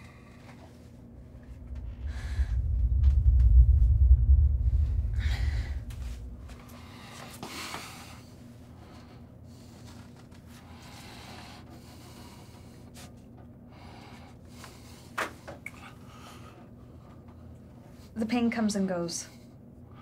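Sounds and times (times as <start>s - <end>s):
deep horror rumble: 1.0s - 7.3s.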